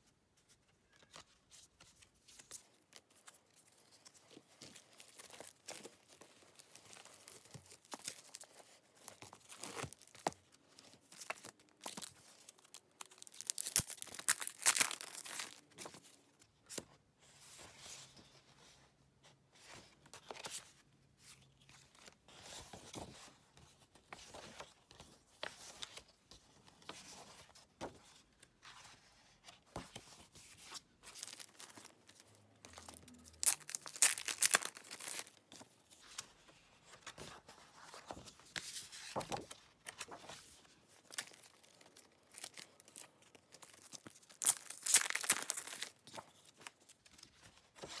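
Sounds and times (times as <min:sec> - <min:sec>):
glossy pages rustling: 0:00.4 - 0:16.8, 0:19.6 - 0:48.0
plastic wrapping crinkling and tearing: 0:09.1 - 0:10.4, 0:11.1 - 0:15.7, 0:31.1 - 0:35.4, 0:41.0 - 0:47.0.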